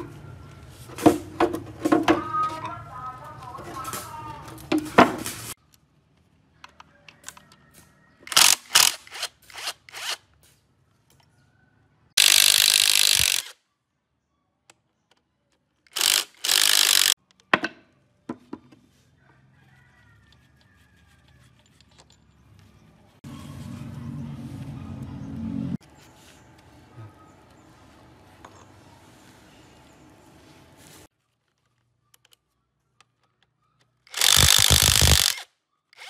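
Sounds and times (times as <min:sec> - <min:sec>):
cordless drill spinning: 0:08.2 - 0:10.2, 0:12.2 - 0:13.6, 0:15.9 - 0:17.2, 0:34.1 - 0:36.0.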